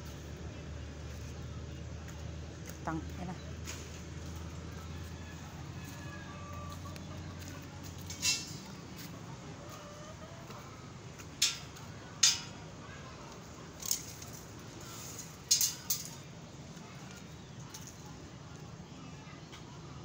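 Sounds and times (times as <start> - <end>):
clicks and taps on steel frame: 11.2 - 12.6, 15.5 - 16.2.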